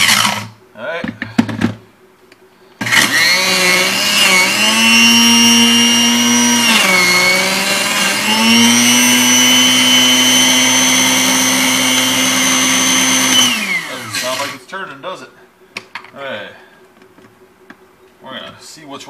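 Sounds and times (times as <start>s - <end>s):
blender motor whining: 0.0s - 0.6s, 2.8s - 14.6s.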